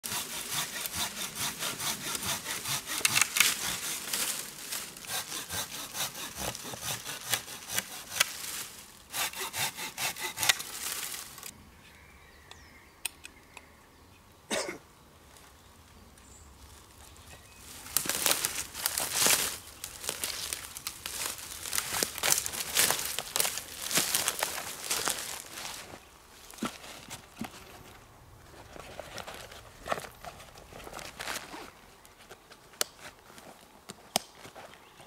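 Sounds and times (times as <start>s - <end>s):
hand saw cutting a branch: 0.0s - 11.5s, 17.9s - 25.9s
wood cracking: 2.7s - 5.2s, 17.9s - 25.9s.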